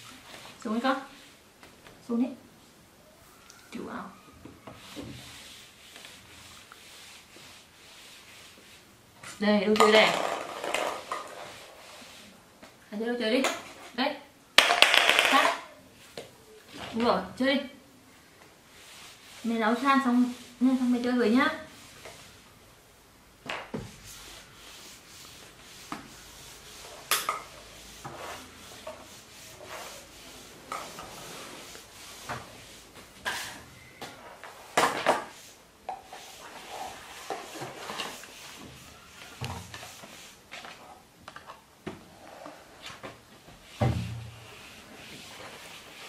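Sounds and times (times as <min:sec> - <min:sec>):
plastic toys knocking and rustling: 0:09.2 - 0:11.4, 0:14.6 - 0:15.7.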